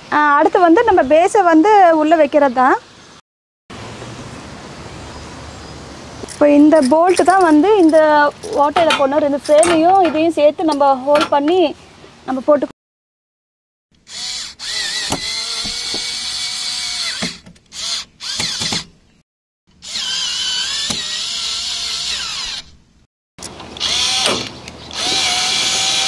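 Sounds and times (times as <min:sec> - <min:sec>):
cordless drill driving screws: 0:14.0 - 0:18.9, 0:19.8 - 0:22.7, 0:23.8 - 0:26.0.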